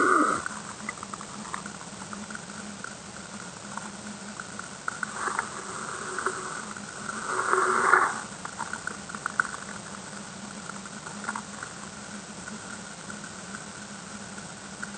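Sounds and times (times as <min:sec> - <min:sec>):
low underwater hum: 0:00.0 - 0:14.9
underwater clicks and crackles: 0:00.0 - 0:14.9.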